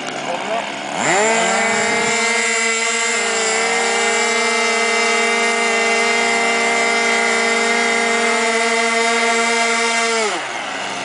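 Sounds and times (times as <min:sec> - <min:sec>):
model airplane engine buzzing: 0:00.0 - 0:11.0.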